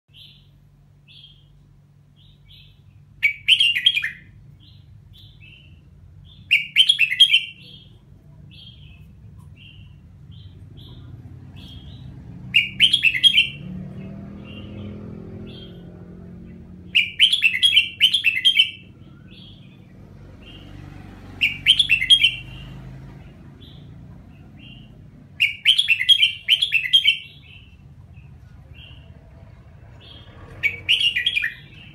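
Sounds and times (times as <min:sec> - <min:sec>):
bird singing warbling phrases: 0:00.1 - 0:31.9
soft bird chirps: 0:00.1 - 0:31.9.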